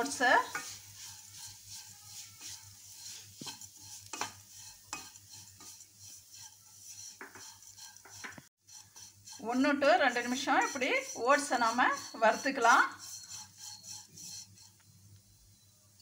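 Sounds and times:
spatula scraping oats in pan: 0.0s - 14.9s
faint sizzle: 0.0s - 16.0s
spatula knocking on pan: 0.4s - 5.8s, 7.1s - 14.0s.

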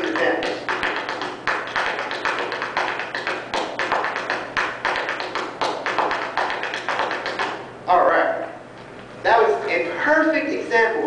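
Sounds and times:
tap shoes striking floor: 0.0s - 7.6s.

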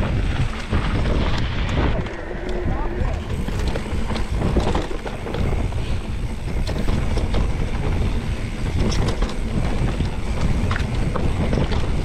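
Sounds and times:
tyres rolling over dirt: 0.0s - 12.0s
wind rumble on camera: 0.0s - 12.0s
bike frame rattling: 3.2s - 12.0s.

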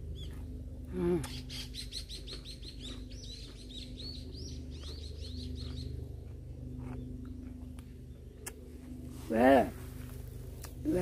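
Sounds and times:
low steady hum: 0.0s - 11.0s
small songbird singing: 1.1s - 6.1s.

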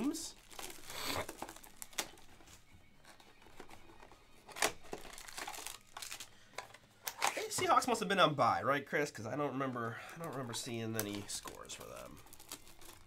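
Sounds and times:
plastic shrink-wrap tearing: 0.0s - 3.8s, 4.4s - 6.4s, 11.0s - 13.0s.

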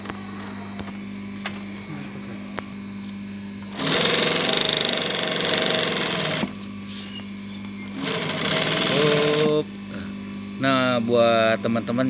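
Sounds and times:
sewing machine stitching: 3.7s - 6.5s, 7.9s - 9.6s
sewing machine hum: 3.7s - 6.6s, 7.9s - 9.6s.

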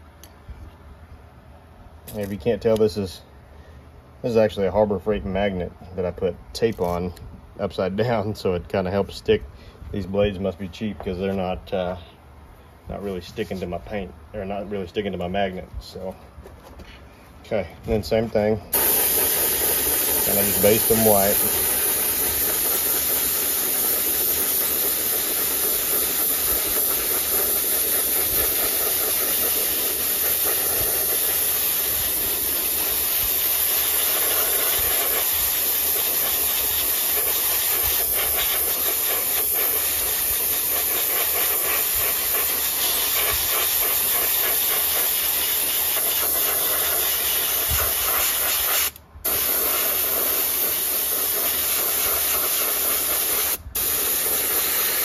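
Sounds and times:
airbrush hissing: 18.7s - 55.0s.

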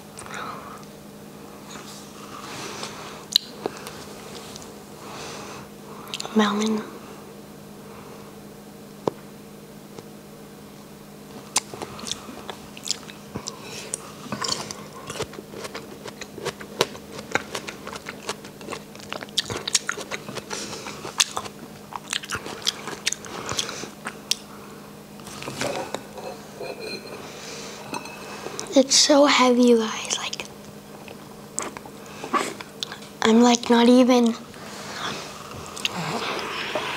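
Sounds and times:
faint steady hum: 0.0s - 36.9s
person chewing melon: 3.2s - 4.7s, 11.3s - 24.6s, 30.3s - 33.2s, 34.9s - 36.9s.

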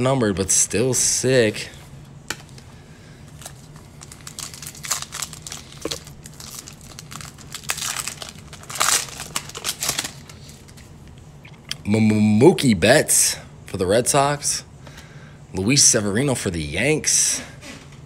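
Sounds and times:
foil wrapper crinkling and tearing: 3.4s - 10.8s.

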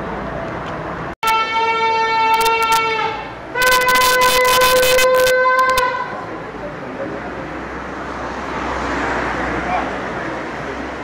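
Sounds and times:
crowd noise in street: 0.0s - 11.0s
long horn blast: 1.2s - 6.2s.

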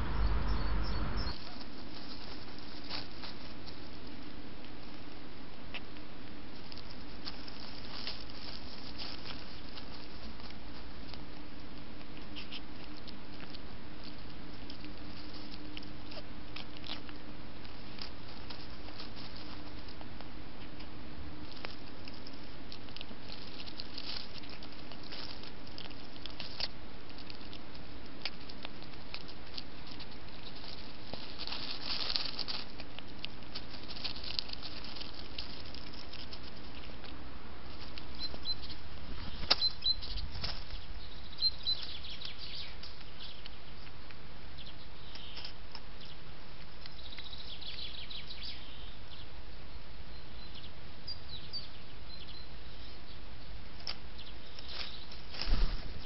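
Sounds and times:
high bird chirps: 0.0s - 1.4s
rustling in dry leaves: 0.0s - 49.1s, 51.7s - 56.0s.

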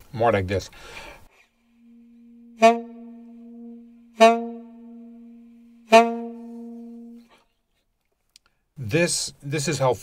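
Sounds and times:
saxophone note with swells: 1.6s - 7.3s.

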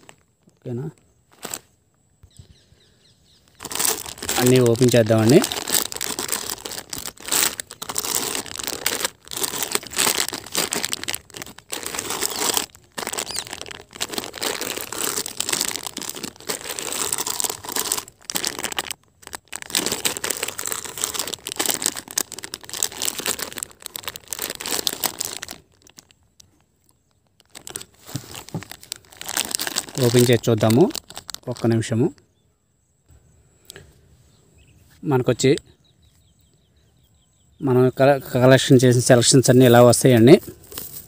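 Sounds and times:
plastic and paper crinkling: 1.3s - 1.7s, 3.6s - 31.9s, 38.6s - 41.0s.

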